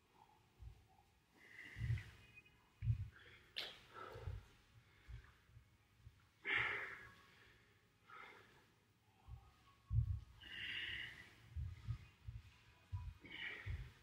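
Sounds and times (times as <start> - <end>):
man breathing hard: 1.3 - 2.2, 3.0 - 5.5, 6.3 - 8.9, 10.0 - 14.0.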